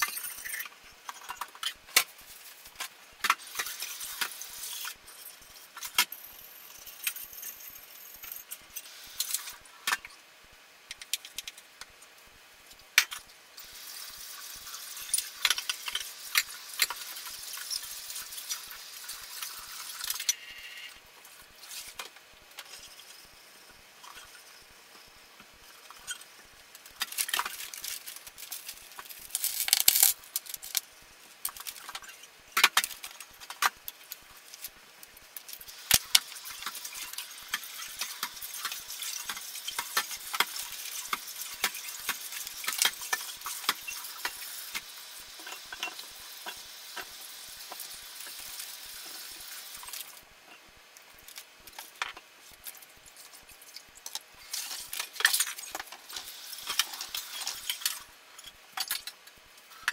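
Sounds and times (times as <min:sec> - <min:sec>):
packaging rustling: 0:26.8 - 0:30.8.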